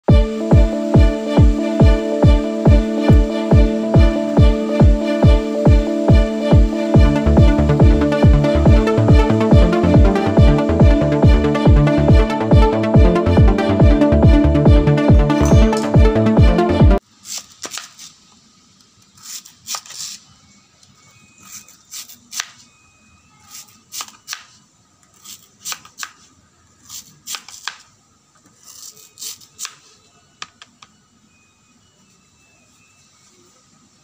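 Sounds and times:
knife slicing on cutting board: 19.2s - 20.2s.

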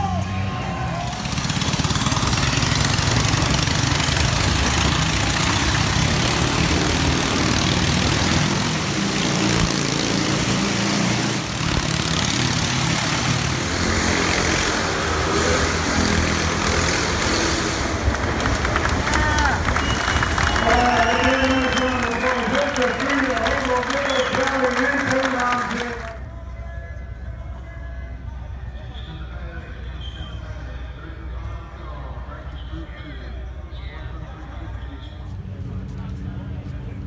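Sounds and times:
motorcycle engines running: 0.0s - 26.3s.

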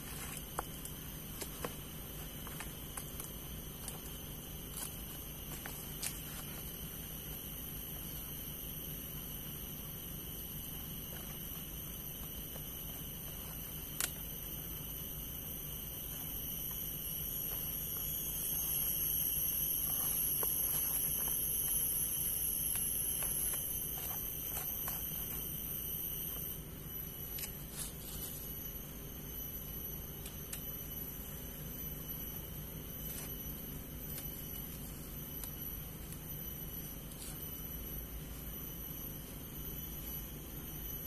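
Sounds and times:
hands rustling leaves and sticks: 0.0s - 8.3s, 17.3s - 26.4s, 27.2s - 29.0s, 32.9s - 38.5s
insects droning: 0.0s - 41.0s.

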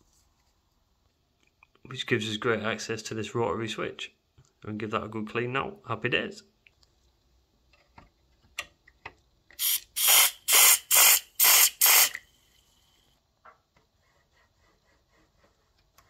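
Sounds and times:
spray can hissing: 9.6s - 12.2s.

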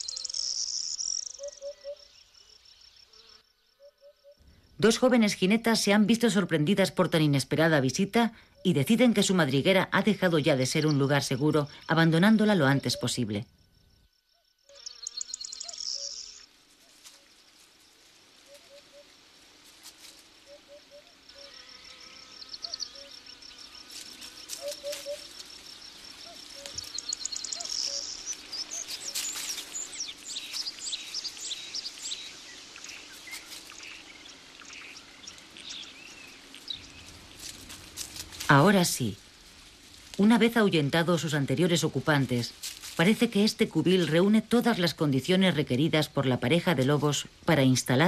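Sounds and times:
high bird chirps: 0.0s - 2.3s, 14.7s - 16.5s, 26.2s - 34.0s
insect buzzing: 0.0s - 4.8s, 13.5s - 44.4s
low bird hoots: 1.3s - 2.1s, 24.6s - 25.3s.

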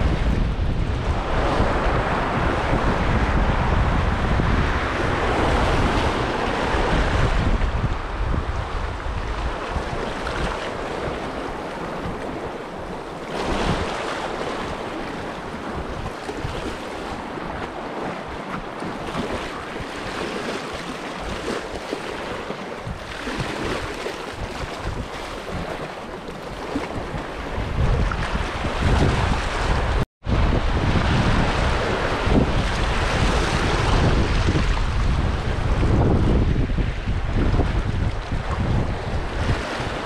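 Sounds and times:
wind buffeting microphone: 0.0s - 40.0s
waves lapping against rocks: 9.3s - 29.8s.

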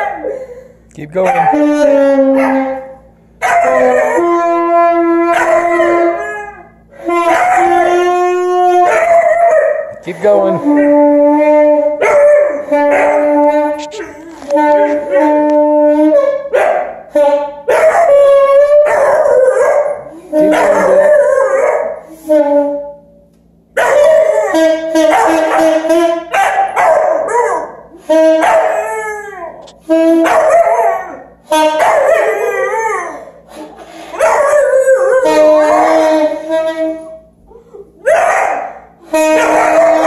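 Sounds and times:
dog howling: 1.2s - 23.0s, 23.8s - 25.7s, 26.5s - 33.4s, 34.2s - 40.0s
saxophone long notes: 1.3s - 3.0s, 3.6s - 9.0s, 10.1s - 16.4s, 20.1s - 21.2s, 24.4s - 26.3s, 27.9s - 30.6s, 31.4s - 31.8s, 35.1s - 37.4s, 39.0s - 40.0s.

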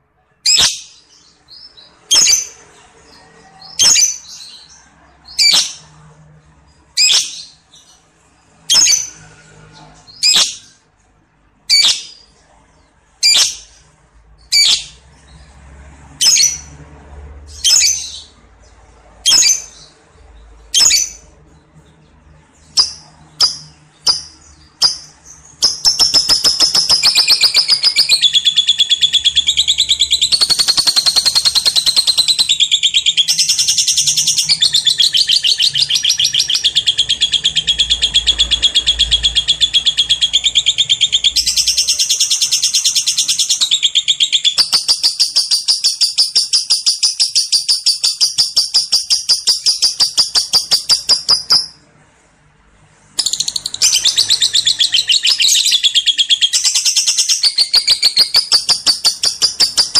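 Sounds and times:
lovebird chattering trill: 22.8s - 51.8s, 53.2s - 59.9s.

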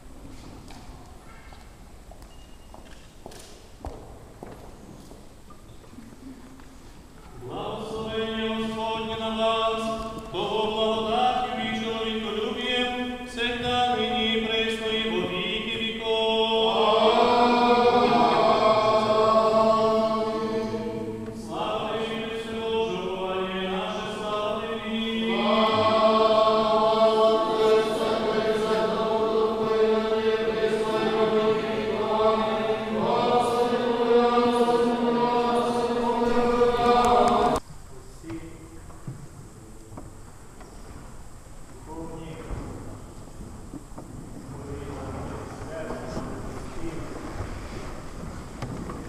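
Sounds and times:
choir chanting in parts: 7.4s - 37.6s.

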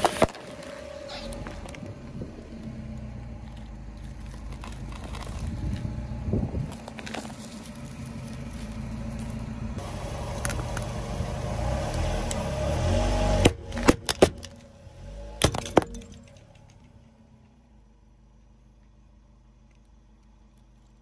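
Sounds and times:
car rumbling on asphalt: 0.0s - 21.0s
plastic jar cracking: 3.4s - 5.9s, 6.7s - 9.4s.

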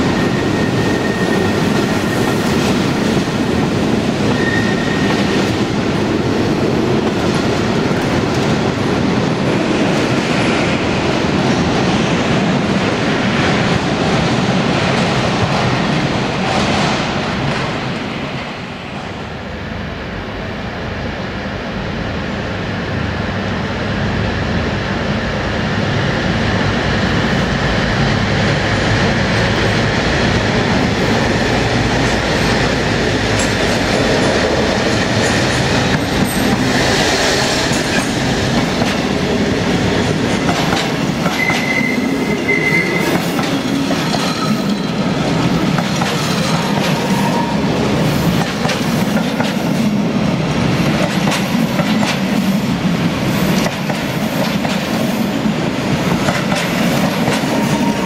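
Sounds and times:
train wheels on rails: 0.0s - 58.0s
high wheel squeal: 0.2s - 2.4s, 4.3s - 5.2s, 41.4s - 45.0s.

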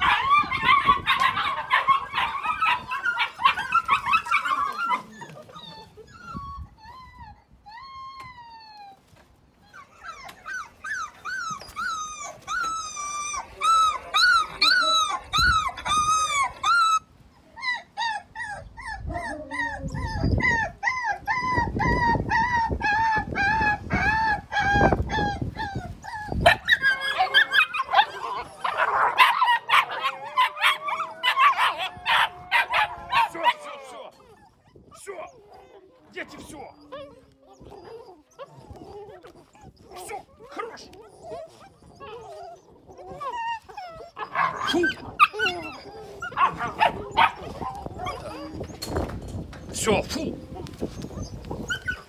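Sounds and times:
puppies crying and whining: 0.0s - 52.0s
puppies yapping: 0.0s - 52.0s.

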